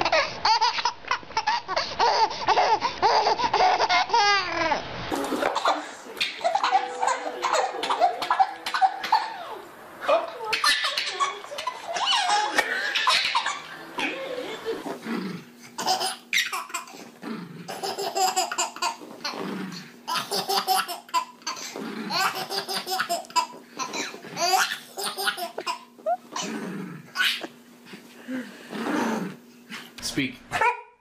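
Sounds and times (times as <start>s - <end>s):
baby laughing: 0.0s - 9.6s, 10.2s - 15.0s, 15.8s - 17.0s, 17.7s - 19.4s, 20.1s - 26.5s, 27.2s - 27.6s.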